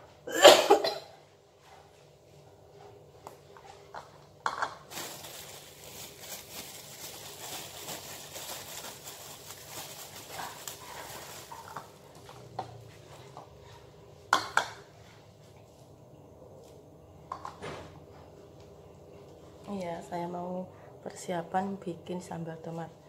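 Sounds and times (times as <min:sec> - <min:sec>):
crinkling and rustling: 0:04.8 - 0:13.3.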